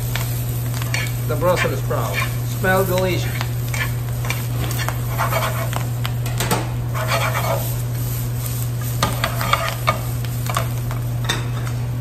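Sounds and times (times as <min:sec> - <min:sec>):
leaves sizzling in frying pan: 0:00.0 - 0:12.0
tongs scraping pan: 0:00.8 - 0:05.8, 0:06.9 - 0:07.8, 0:09.0 - 0:10.7.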